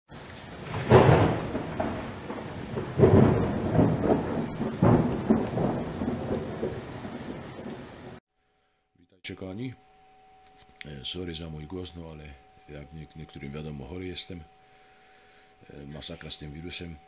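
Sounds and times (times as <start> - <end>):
steady rain: 0.1 - 8.2
thunderclaps rumbling: 0.1 - 8.2.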